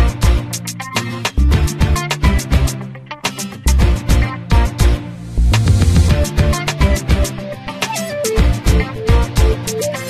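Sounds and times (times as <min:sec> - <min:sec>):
bass line: 0:00.0 - 0:00.5, 0:01.4 - 0:02.7, 0:03.7 - 0:07.6, 0:08.4 - 0:09.7
drum beat: 0:05.5 - 0:09.8.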